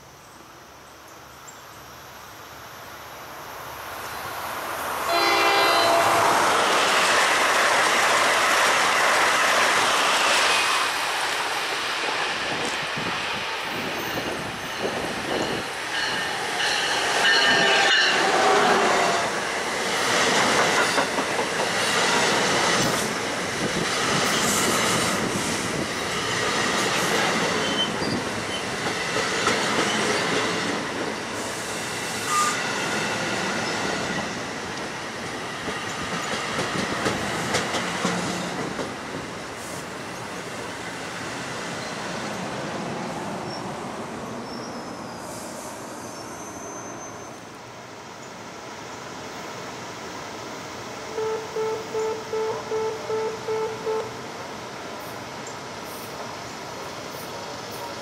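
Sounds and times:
train wheels rumbling on rails: 4.1s - 47.0s
high wheel squeals: 32.2s - 32.6s, 44.4s - 47.5s.

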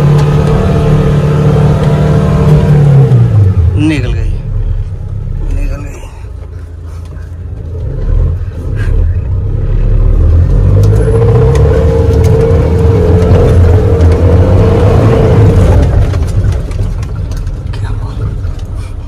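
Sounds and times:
vehicle engine revving: 0.0s - 5.8s, 7.4s - 17.2s.

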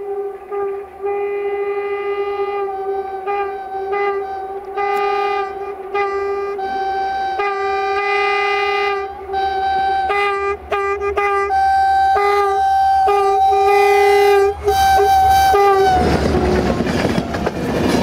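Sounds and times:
diesel locomotive horn blasts: 0.0s - 18.0s.

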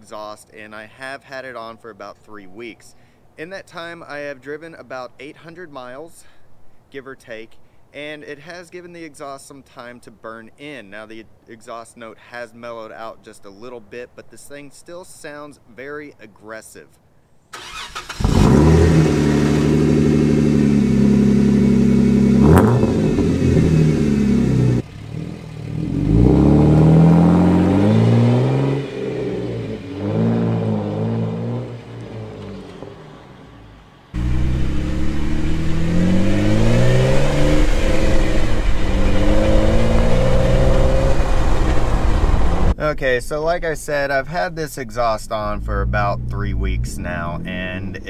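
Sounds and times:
car engine revving and accelerating: 17.8s - 42.8s, 45.6s - 48.0s.

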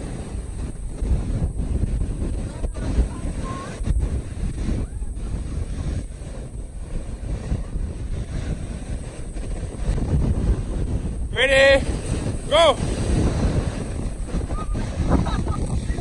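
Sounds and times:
surf breaking on the beach: 0.0s - 16.0s
wind buffeting the microphone: 0.0s - 16.0s.

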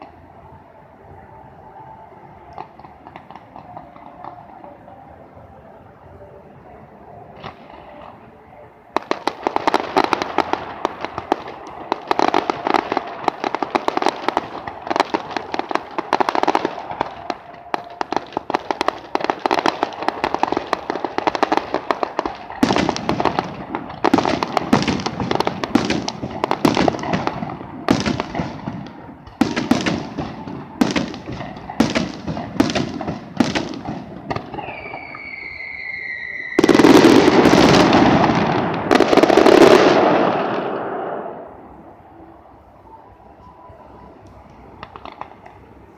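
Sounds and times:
loud continuous rush: 0.0s - 45.9s
firework crackling bangs: 9.0s - 41.6s
firework bursts: 9.0s - 42.4s
falling firework whistle: 32.6s - 41.5s.

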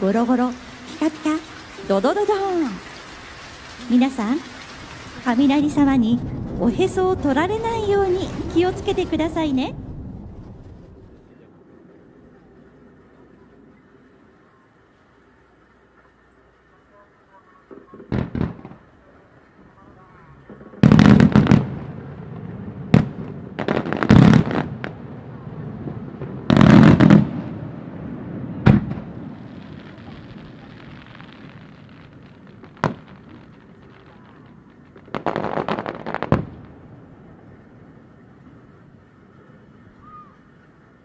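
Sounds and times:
firework sharp bangs: 0.0s - 11.3s, 17.7s - 18.9s, 20.4s - 37.7s
rumbling echoes: 0.0s - 11.4s
firework rolling booms: 0.0s - 14.0s, 17.7s - 40.6s.

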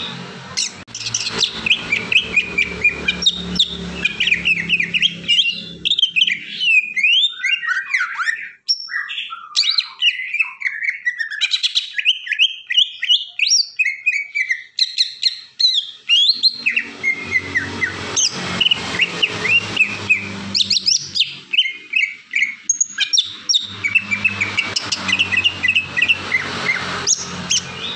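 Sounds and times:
bird singing chirps and whistles: 0.6s - 27.9s.

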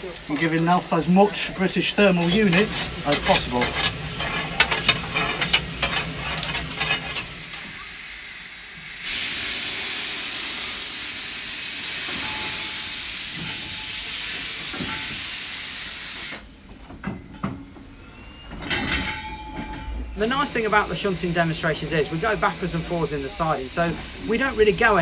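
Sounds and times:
steam hissing: 0.0s - 16.7s, 20.0s - 25.0s
fire rake scraping on firebars: 0.1s - 7.6s.

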